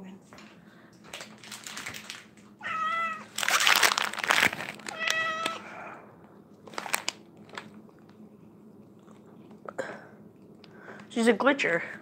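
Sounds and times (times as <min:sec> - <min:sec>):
loud crinkling rustle: 0:01.1 - 0:05.6, 0:06.7 - 0:07.7
cat meowing: 0:02.6 - 0:03.3, 0:04.9 - 0:05.6.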